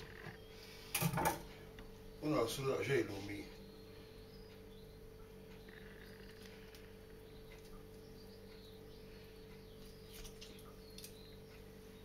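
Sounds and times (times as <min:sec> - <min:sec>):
low electrical hum: 0:00.0 - 0:12.0
faint small ticks: 0:04.5 - 0:11.7.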